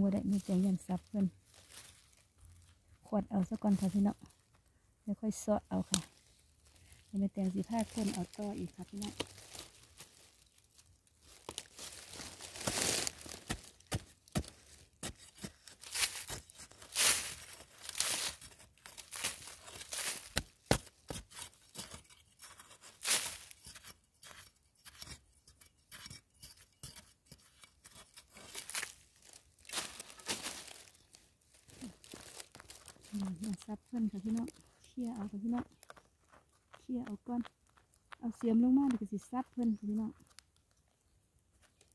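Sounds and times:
spade scraping dry soil: 11.4s - 36.0s.

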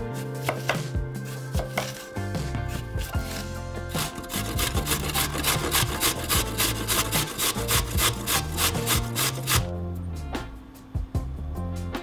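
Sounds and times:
carrot rasping on grater: 3.0s - 9.7s.

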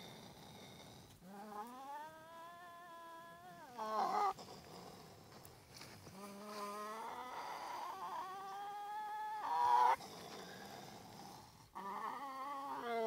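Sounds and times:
raccoon dog whining call: 6.7s - 10.0s, 11.8s - 13.0s.

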